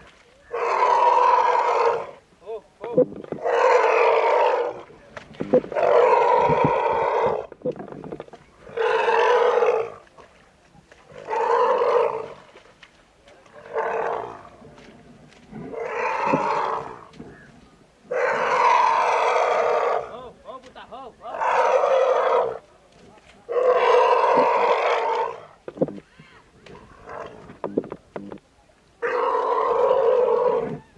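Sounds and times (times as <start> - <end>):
elephant calf bellowing: 15.5 - 17.5.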